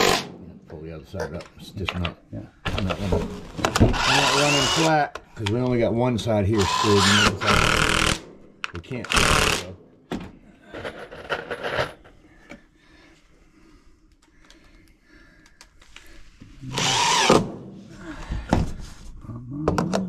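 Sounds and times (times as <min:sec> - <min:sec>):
power driver driving screw into wood: 0:00.0 - 0:00.3, 0:03.7 - 0:05.0, 0:06.6 - 0:08.3, 0:09.1 - 0:09.7, 0:16.7 - 0:17.6.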